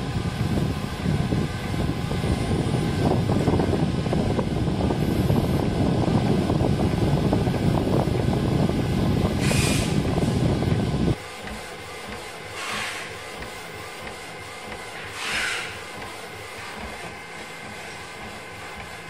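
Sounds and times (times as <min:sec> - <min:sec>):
printer mechanical rumble: 0:00.0 - 0:19.0.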